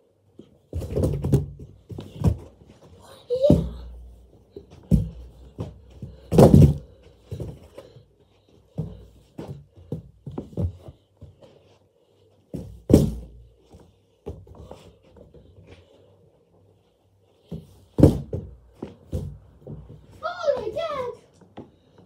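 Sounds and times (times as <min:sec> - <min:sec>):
balloon thuds: 0:06.1 - 0:07.0.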